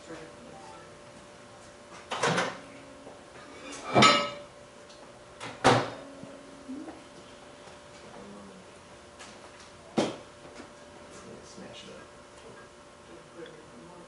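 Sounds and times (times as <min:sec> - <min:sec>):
kitchen knocks and clatters: 0:03.7 - 0:04.5.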